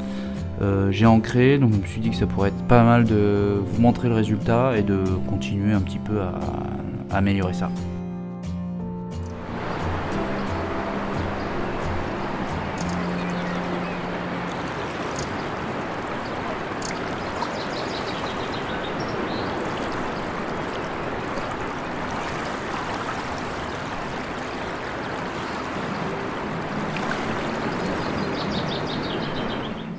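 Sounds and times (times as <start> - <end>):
water rushing in stream: 9.3 - 29.8.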